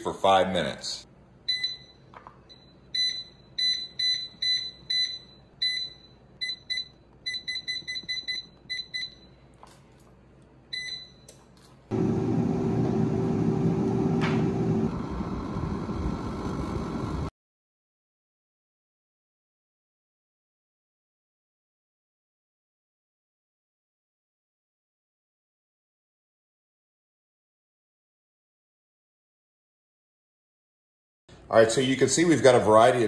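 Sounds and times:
air fryer fan humming: 11.9 - 17.3.

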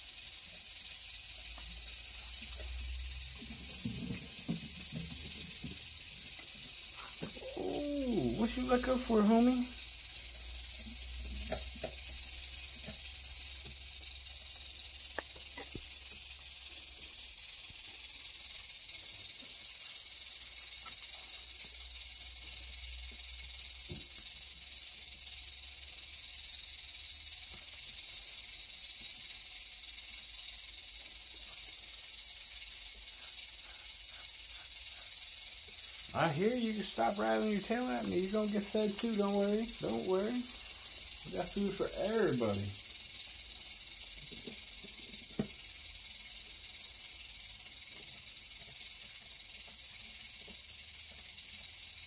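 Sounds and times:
snake tail rattling: 0.0 - 52.0.

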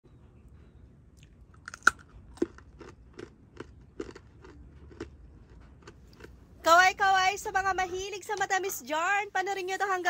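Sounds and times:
brittle cracking when bitten: 1.2 - 4.2
chewing crunches: 1.2 - 6.5.

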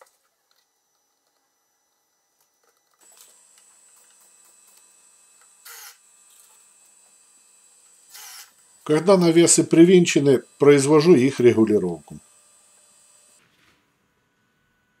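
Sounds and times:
cordless drill driving screw: 3.0 - 13.4.

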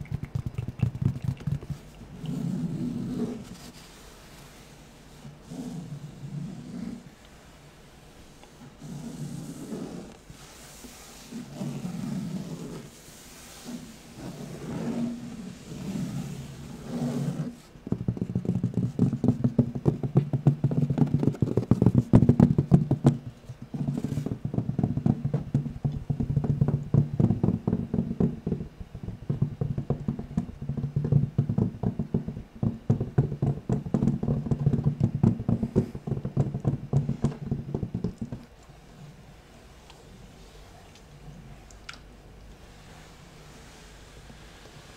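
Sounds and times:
fabric scratching and tapping: 0.0 - 3.9, 8.8 - 38.6.

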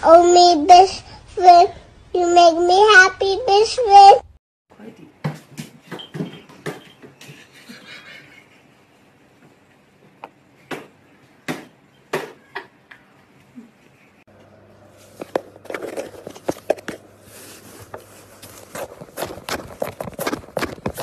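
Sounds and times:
kitten crunching cardboard: 15.1 - 21.0.

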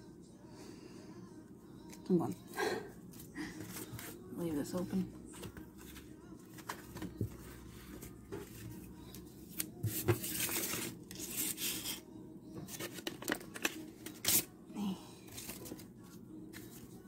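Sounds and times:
plastic sleeves and paper crinkling: 12.7 - 14.5.

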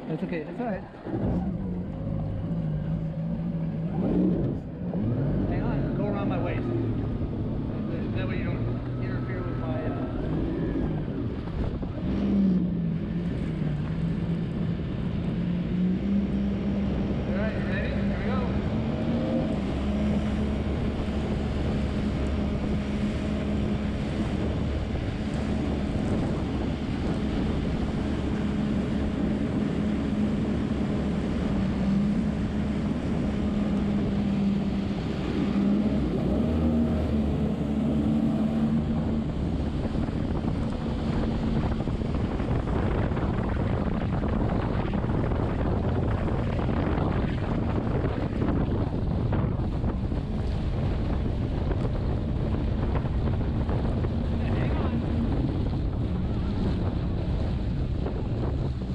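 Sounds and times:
jet ski engine running: 0.0 - 58.9
wind buffeting microphone: 0.0 - 58.9.

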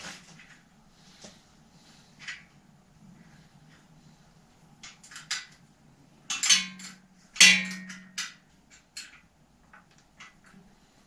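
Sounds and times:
loud metallic clanks: 6.3 - 8.4
metal tools clinking: 6.3 - 9.2.

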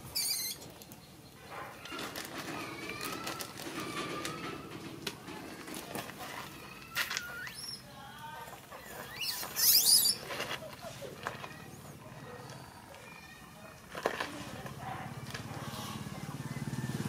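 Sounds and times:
baby monkey coo calls: 0.1 - 0.6, 9.0 - 10.3
shrill monkey scream: 0.1 - 0.6, 9.1 - 10.2.

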